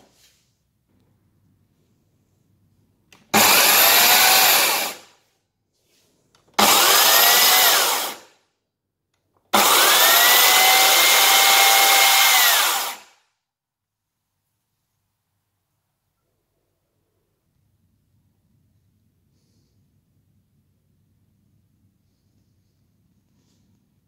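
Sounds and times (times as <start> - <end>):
electric chainsaw motor whining: 3.3 - 5.1, 6.6 - 8.3, 9.5 - 13.2.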